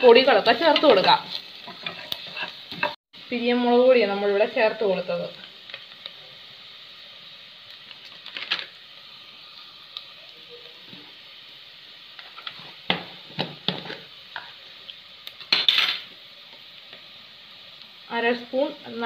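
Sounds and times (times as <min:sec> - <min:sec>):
onions sizzling in pot: 0:00.0 - 0:19.0
wooden spatula scraping pot: 0:00.7 - 0:03.0.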